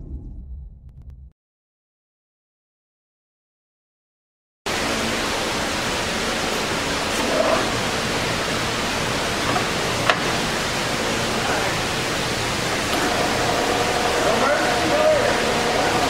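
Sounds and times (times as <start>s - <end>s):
lathe drive humming: 4.7s - 16.0s.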